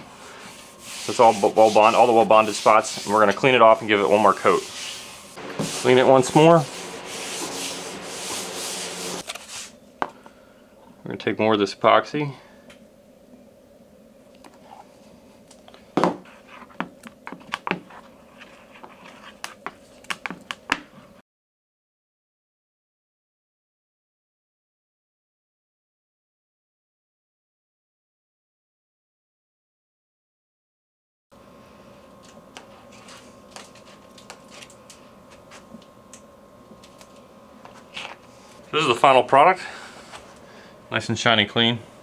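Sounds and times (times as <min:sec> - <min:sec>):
faint steady hum: 0:00.0 - 0:21.2, 0:31.4 - 0:42.0
applicator stick scraping epoxy: 0:00.4 - 0:09.6.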